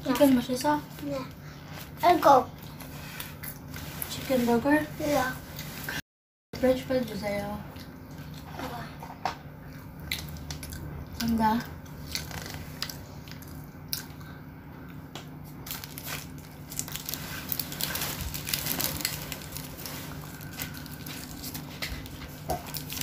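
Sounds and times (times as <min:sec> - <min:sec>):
paper wrapper crinkling: 0:15.6 - 0:23.0.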